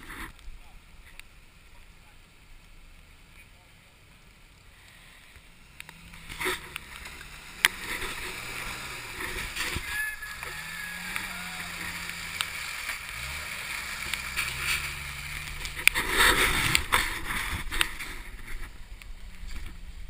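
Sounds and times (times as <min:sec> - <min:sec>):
off-road engine revving: 0:04.8 - 0:20.0
water splashing: 0:04.9 - 0:19.0.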